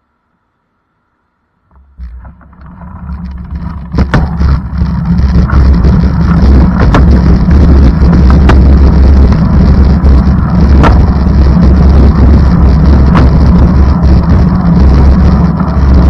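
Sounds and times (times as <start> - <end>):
low rumble of moving vehicle: 0.0 - 16.0
sharp knocks: 1.7 - 8.9, 10.7 - 11.2, 13.1 - 13.5.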